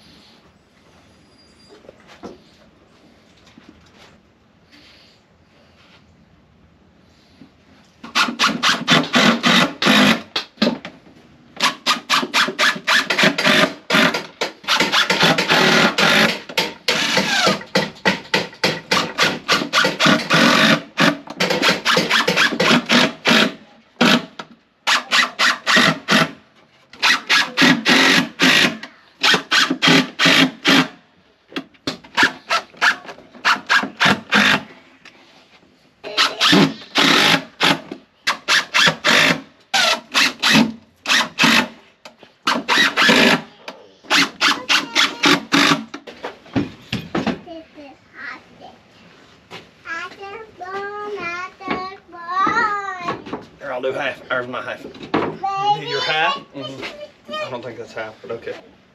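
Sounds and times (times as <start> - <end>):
drill driving screws into wood: 8.0 - 10.5, 11.6 - 26.4, 27.0 - 31.0, 32.1 - 34.7, 36.1 - 41.8, 42.4 - 43.5, 44.1 - 46.0.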